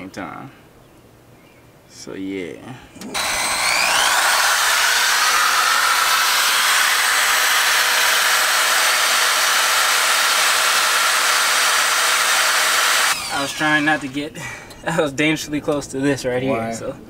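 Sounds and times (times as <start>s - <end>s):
electric drill whining: 3.1s - 14.3s.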